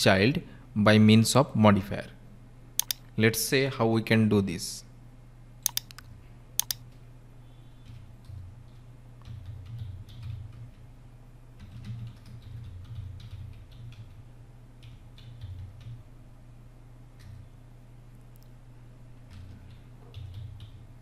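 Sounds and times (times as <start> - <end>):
steady low hum: 0.0 - 21.0
keyboard typing: 2.8 - 3.0, 5.7 - 6.8, 7.8 - 10.7, 11.6 - 14.2, 14.8 - 16.0
sharp clicks: 2.8 - 3.0, 5.7 - 6.8.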